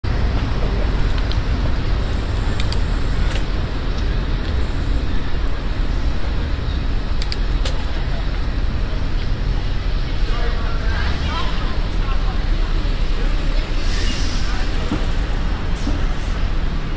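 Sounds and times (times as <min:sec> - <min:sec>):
cars and bus passing: 0:00.0 - 0:16.9.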